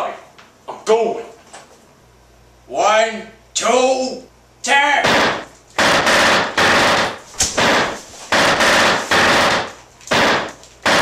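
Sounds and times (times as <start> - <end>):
rapid automatic gunfire bursts: 5.1 - 11.0.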